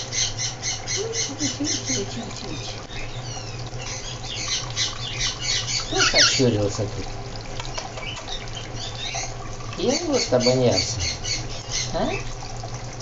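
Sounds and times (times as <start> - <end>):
pet birds rapid high calls: 0.0 - 6.5.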